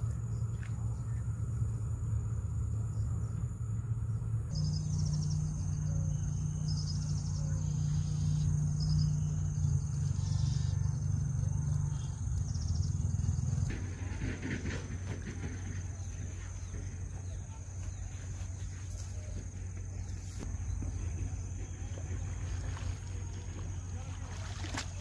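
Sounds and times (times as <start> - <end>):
insect pulsed chirps: 0.0 - 13.7
insect high whine: 0.0 - 25.0
low steady rumble: 0.0 - 25.0.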